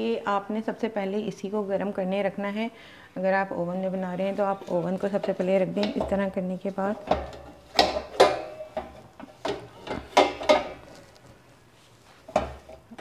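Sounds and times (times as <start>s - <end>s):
metal tin clanking on metal pot: 7.0s - 11.0s.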